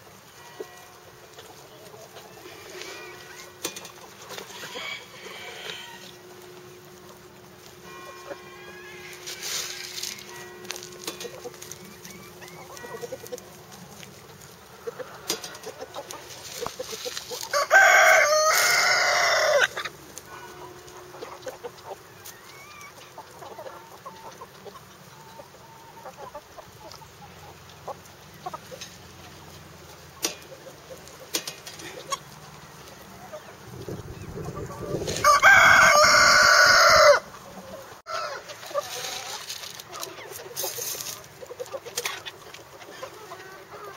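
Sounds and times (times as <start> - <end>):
chickens clucking softly: 0.3 - 43.9
rooster crowing: 4.4 - 6.3, 7.9 - 10.4, 17.4 - 20.7, 34.9 - 37.3, 38.0 - 38.6.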